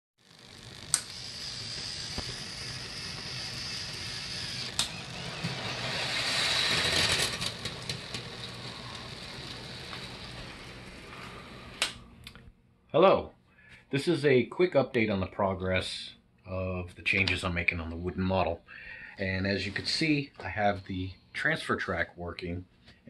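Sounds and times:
small electric motors whirring: 0.2s - 12.0s
sharp clicks: 4.4s - 5.0s, 11.8s - 12.5s.

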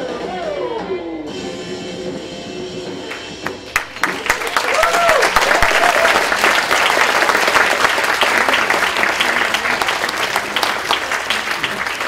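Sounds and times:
audience applauding: 3.1s - 12.0s.

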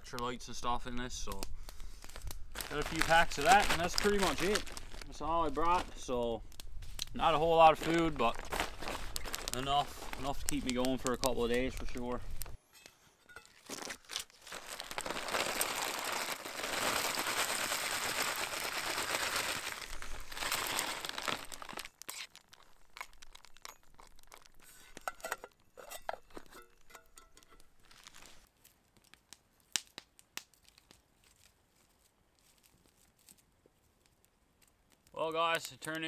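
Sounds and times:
plastic packaging crinkling: 1.3s - 12.6s, 13.3s - 25.4s, 26.3s - 34.2s
spoon clinking in metal pot: 25.0s - 27.7s.

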